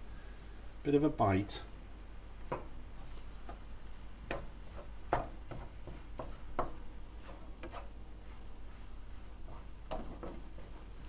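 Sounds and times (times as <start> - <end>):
utensil tapping frying pan: 4.3 - 6.8.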